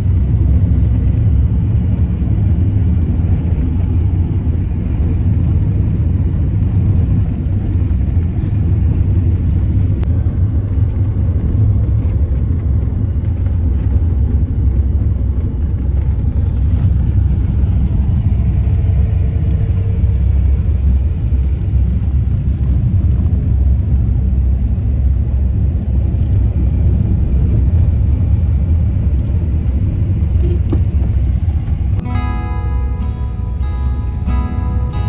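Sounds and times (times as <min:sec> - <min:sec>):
road and engine rumble in van: 0:00.0 - 0:35.0
music: 0:32.0 - 0:35.0.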